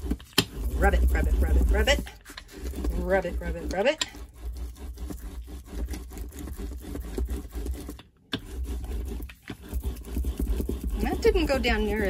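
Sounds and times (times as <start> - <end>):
rubber roller scraping paper: 0.0 - 12.0.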